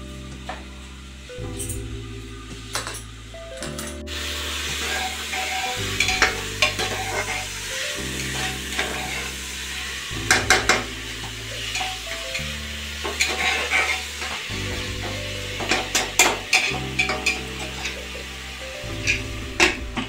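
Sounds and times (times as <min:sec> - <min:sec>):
food sizzling: 0:00.0 - 0:20.0
metal spoon scraping a pot: 0:04.8 - 0:07.6, 0:13.0 - 0:14.9, 0:15.6 - 0:18.1
metal clinking on pot: 0:15.6 - 0:18.1.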